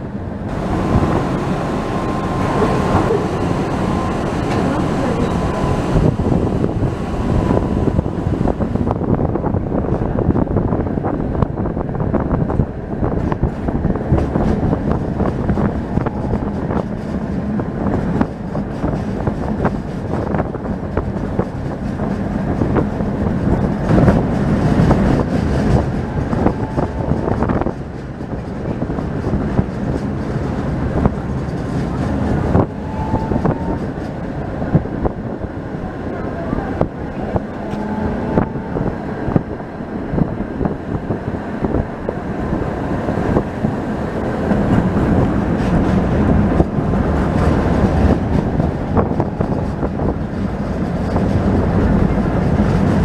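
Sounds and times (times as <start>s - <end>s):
tram wheels rumbling on rails: 0.0s - 53.0s
wheels clicking and rattling: 12.4s - 34.5s, 43.2s - 53.0s.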